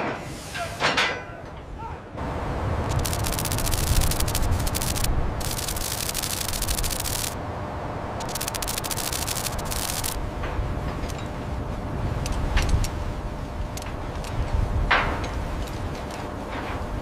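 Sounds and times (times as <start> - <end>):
film crackle static: 2.9 - 7.4, 8.2 - 10.2
scattered clicks: 2.9 - 7.4, 8.2 - 10.2, 12.2 - 13.0.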